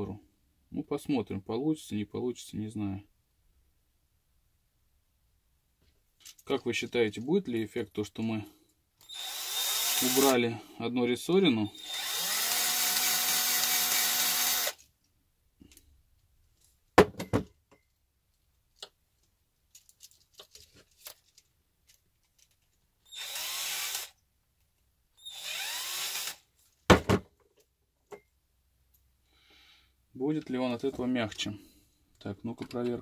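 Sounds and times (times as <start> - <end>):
cordless drill running: 9.0 - 10.4, 11.7 - 14.8, 23.1 - 24.2, 25.2 - 26.4.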